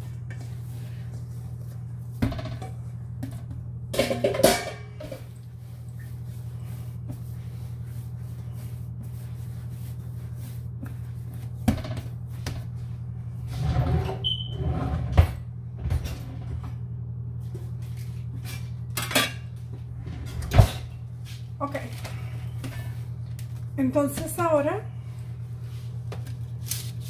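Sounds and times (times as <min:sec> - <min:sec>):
hands kneading dough: 0:00.0 - 0:03.8, 0:05.2 - 0:13.6
low hum: 0:00.0 - 0:24.0
kitchen things knocking: 0:04.0 - 0:05.3.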